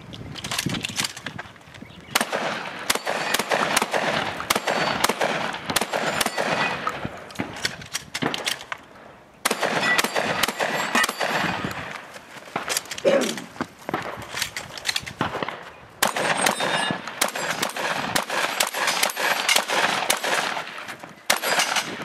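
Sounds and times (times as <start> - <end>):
shotgun firing: 2.2 - 7.6, 9.4 - 11.9, 15.2 - 22.0
steel targets clanging: 9.6 - 11.8, 16.1 - 17.8.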